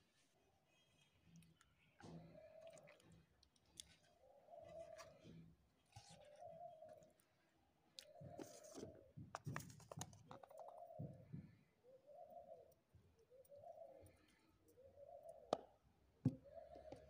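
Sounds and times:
bird calling: 4.0s - 7.2s, 8.0s - 9.1s, 10.3s - 17.0s.

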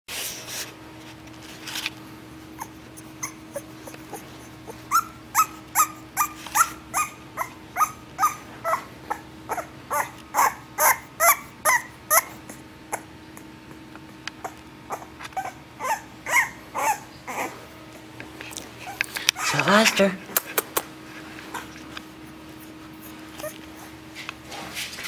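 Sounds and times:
steady low hum: 0.1s - 25.0s
puppies whimpering and crying: 2.5s - 17.8s, 18.8s - 19.9s, 22.5s - 24.0s.

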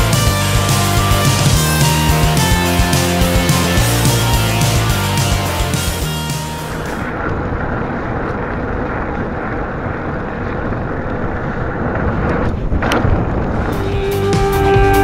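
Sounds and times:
wind buffeting microphone: 6.7s - 15.0s
bike tyres rumbling on rocky trail: 6.8s - 14.3s.

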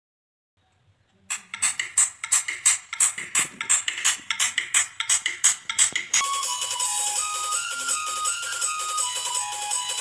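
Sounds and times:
light steady beat: 1.3s - 10.0s
melody of held high notes: 6.2s - 10.0s.

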